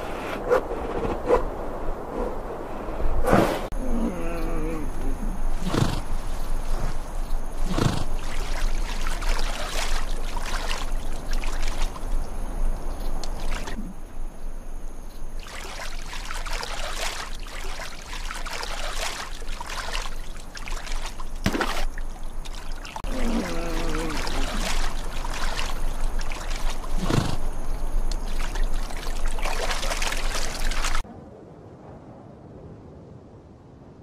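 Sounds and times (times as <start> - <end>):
water trickling and sloshing: 5.0 - 14.2, 15.0 - 31.1
water splashes: 5.6 - 14.0, 15.3 - 31.1.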